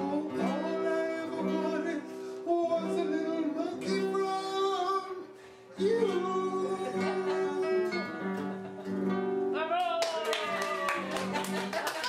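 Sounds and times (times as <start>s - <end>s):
person singing: 0.0s - 8.4s
acoustic guitar: 0.0s - 12.0s.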